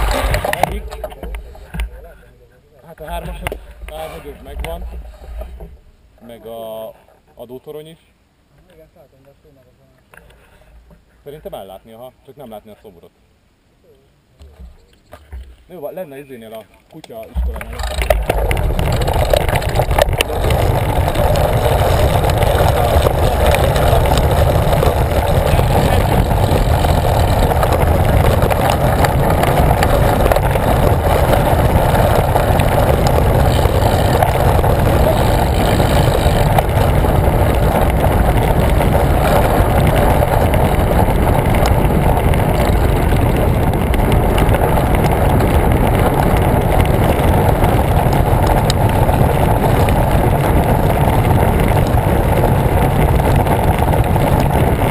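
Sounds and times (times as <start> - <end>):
wind rushing over microphone: 0.0 - 2.0, 17.3 - 54.9.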